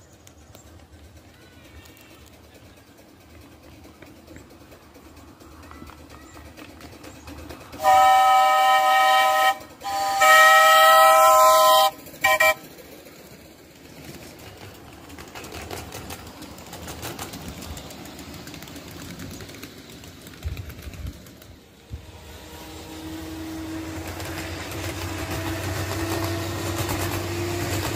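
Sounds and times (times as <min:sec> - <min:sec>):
chime steam whistle: 0:07.8 - 0:12.6.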